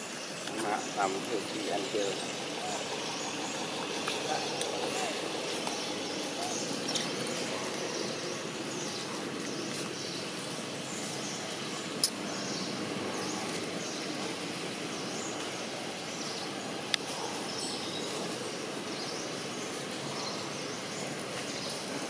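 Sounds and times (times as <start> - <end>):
steady background hiss: 0.0 - 22.0.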